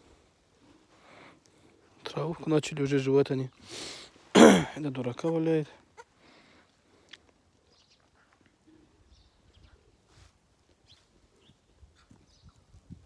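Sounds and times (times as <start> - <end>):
faint ticks and rustles: 0.2 - 2.8, 5.7 - 8.7, 9.5 - 13.0
small birds chirping: 4.9 - 13.0.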